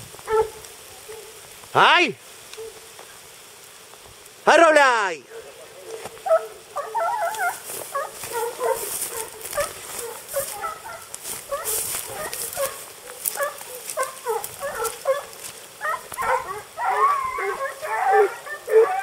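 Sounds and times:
dogs baying and yelping: 0.3 - 1.4, 2.6 - 2.9, 5.3 - 19.0
brush rustling against camera: 5.5 - 19.0.

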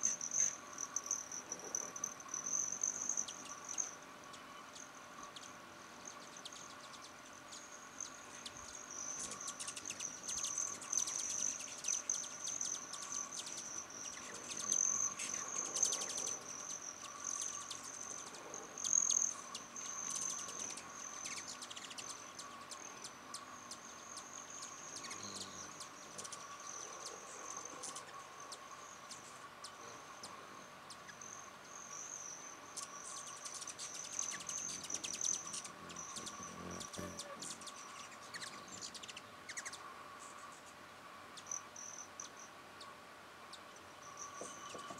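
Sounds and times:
high-pitched insect trill: 0.0 - 40.6, 41.4 - 42.6, 43.6 - 44.9
hummingbirds chittering: 0.0 - 40.7, 41.3 - 42.5, 43.5 - 44.9.

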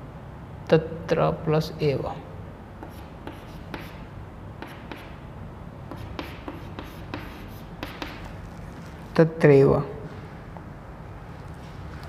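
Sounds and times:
chalk scratching on blackboard: 2.8 - 4.0, 4.6 - 5.2, 5.9 - 8.3.

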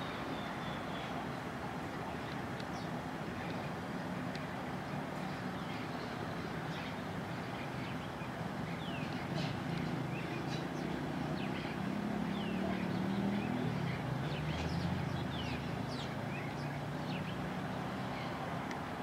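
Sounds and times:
road traffic rumble: 0.0 - 19.0
small birds chirping: 4.8 - 18.7.

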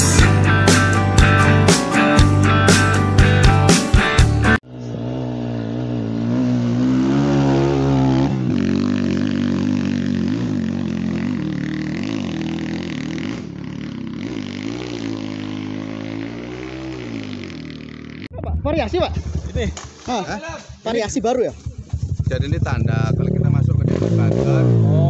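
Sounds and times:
motorcycle engine revving: 4.6 - 25.0.

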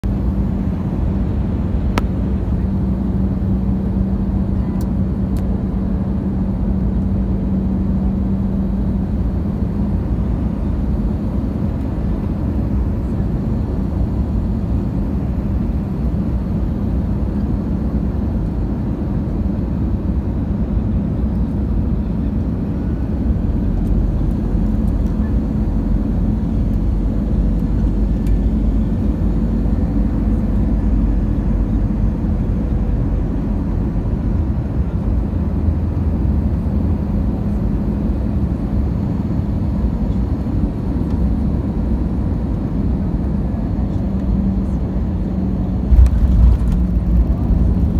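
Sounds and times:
airliner cabin engine rumble: 0.0 - 47.9.

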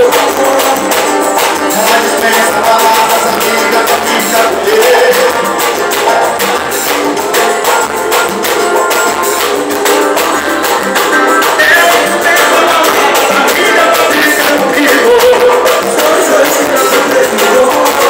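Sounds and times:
man singing into microphone: 0.0 - 6.8, 11.3 - 18.0
percussion hits: 0.0 - 18.0
strummed acoustic guitar: 0.0 - 18.0.

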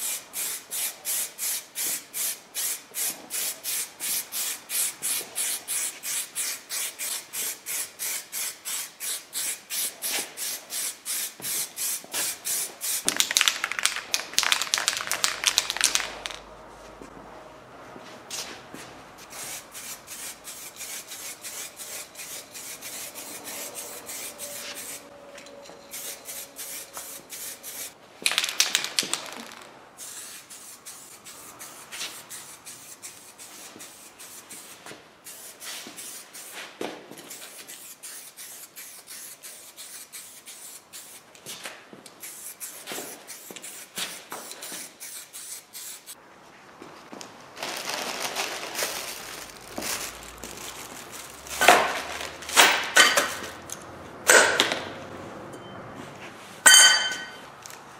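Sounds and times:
spray paint can hissing: 0.0 - 16.4, 19.2 - 25.1, 25.9 - 41.2, 42.2 - 46.2.

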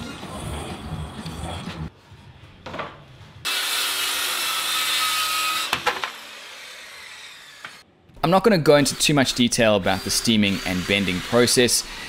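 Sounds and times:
power tool running: 3.5 - 7.8, 8.8 - 12.0.

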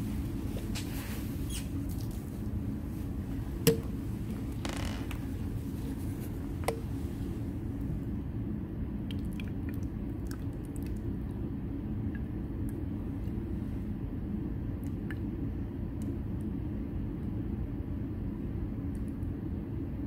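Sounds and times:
low room rumble: 0.0 - 20.0.

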